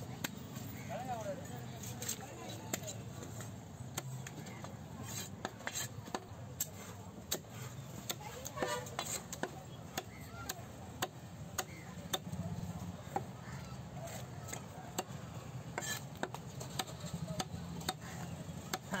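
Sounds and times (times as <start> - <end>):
knife chopping on wooden block: 15.8 - 18.1.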